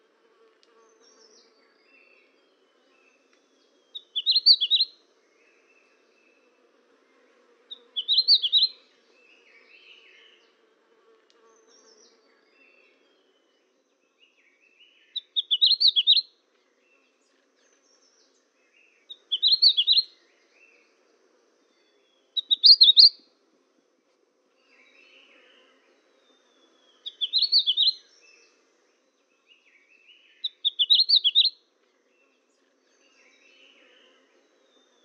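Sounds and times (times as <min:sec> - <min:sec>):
songbirds chirping: 0:00.0 - 0:35.0
soft bird twitters: 0:03.9 - 0:04.9, 0:07.7 - 0:08.8, 0:15.0 - 0:16.2, 0:19.1 - 0:20.0, 0:22.4 - 0:23.2, 0:27.0 - 0:28.1, 0:30.1 - 0:31.5.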